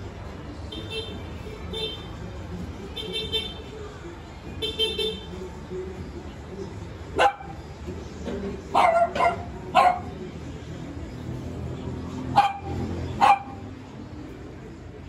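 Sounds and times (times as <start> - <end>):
dog barking: 7.2 - 7.6, 8.7 - 10.2, 12.3 - 13.7.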